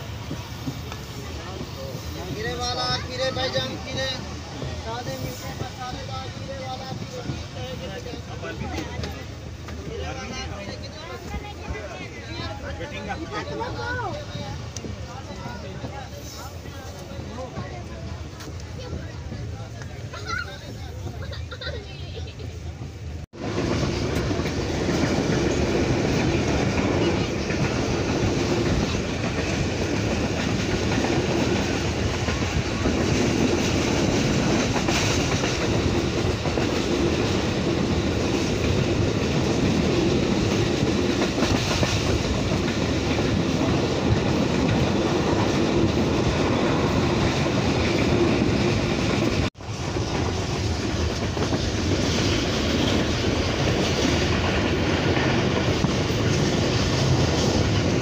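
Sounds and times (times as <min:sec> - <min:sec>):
train wheels rumbling and rattling: 0:00.0 - 0:58.0.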